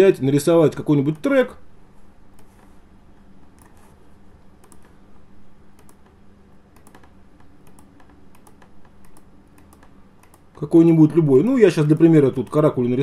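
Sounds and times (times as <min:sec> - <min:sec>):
low steady hum: 0:00.0 - 0:13.0
computer mouse clicking: 0:02.3 - 0:02.8, 0:03.4 - 0:04.0, 0:04.6 - 0:05.0, 0:05.7 - 0:11.2.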